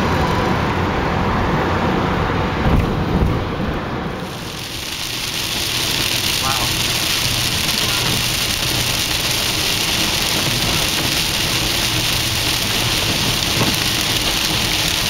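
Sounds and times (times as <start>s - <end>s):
engine and road hum: 0.0s - 15.0s
tyres hissing on wet road: 3.9s - 15.0s
rain on car: 4.1s - 15.0s.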